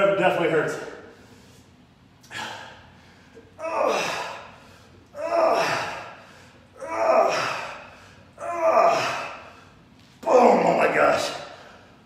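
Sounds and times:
man straining breaths: 0:01.1 - 0:09.8.

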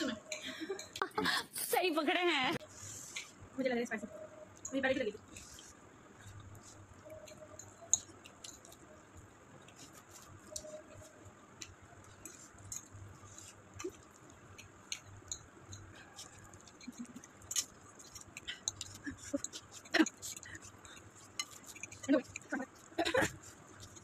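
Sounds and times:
chewing noodles: 0:04.6 - 0:24.0
forks scraping ceramic plates: 0:14.9 - 0:24.0.

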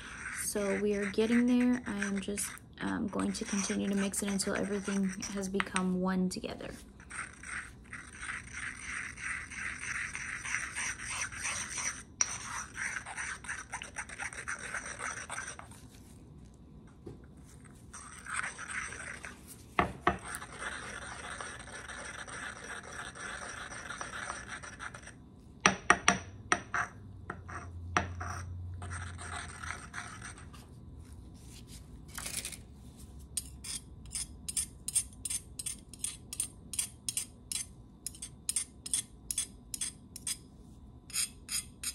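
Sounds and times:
metal spatula scraping: 0:00.0 - 0:05.8, 0:06.4 - 0:15.9.

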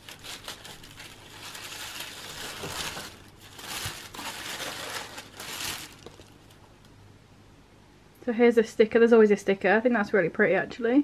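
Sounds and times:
tissue paper rustling: 0:00.0 - 0:06.6.

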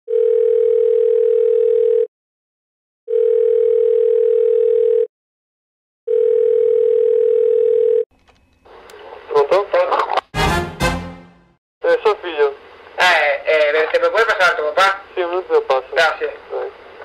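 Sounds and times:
telephone ringing tone: 0:00.1 - 0:02.1, 0:03.1 - 0:05.1, 0:06.1 - 0:08.7.

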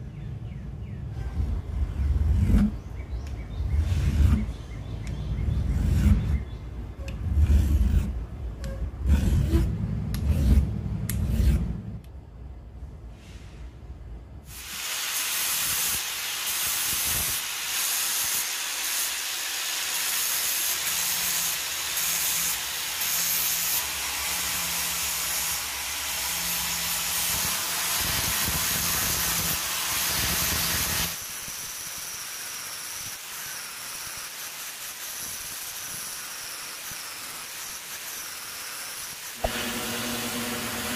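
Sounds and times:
angle grinder grinding: 0:03.8 - 0:11.9, 0:17.0 - 0:40.9
hand file rasping on steel: 0:05.6 - 0:11.8.

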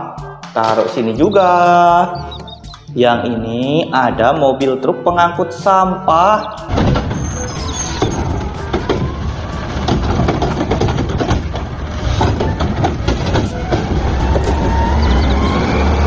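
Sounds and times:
garbage truck engine rumbling: 0:05.6 - 0:16.0
clanks and knocks: 0:06.7 - 0:15.4.

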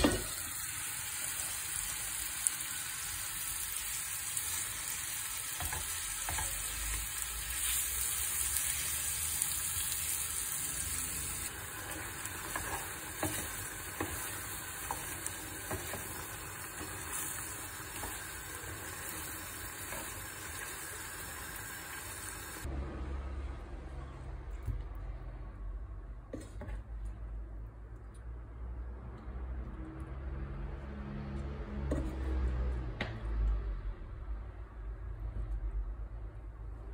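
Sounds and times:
chicken sizzling in a frying pan: 0:00.0 - 0:22.7
spatula scraping and tapping pan: 0:05.6 - 0:07.0, 0:11.8 - 0:18.3, 0:31.9 - 0:33.1.

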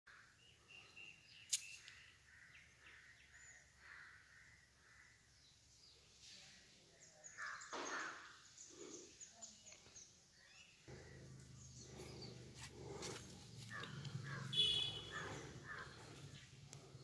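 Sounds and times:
faint birds chirping: 0:00.1 - 0:17.0.

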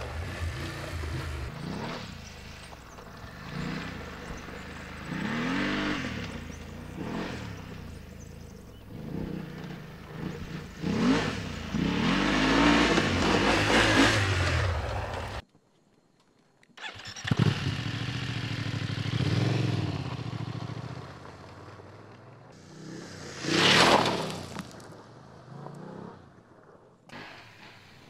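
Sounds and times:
motorcycle engine revving: 0:00.0 - 0:15.4, 0:16.8 - 0:28.0
gravel spraying from tyre: 0:19.3 - 0:28.0.

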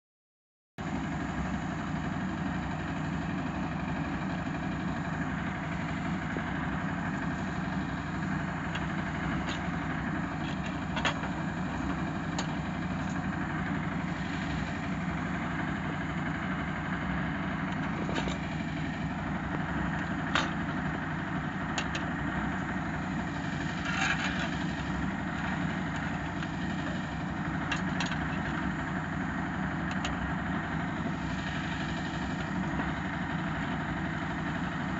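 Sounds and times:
engine running: 0:00.8 - 0:34.9.

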